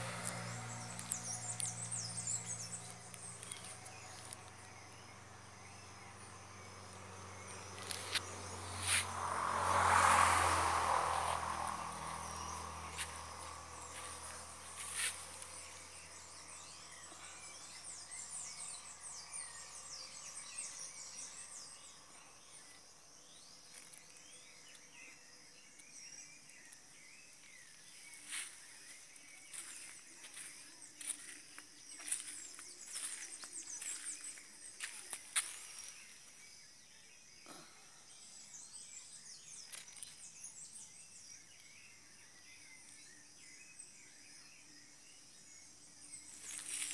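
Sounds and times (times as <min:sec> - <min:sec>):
bird chirps: 0:00.0 - 0:09.3
insects chirping: 0:00.0 - 0:46.9.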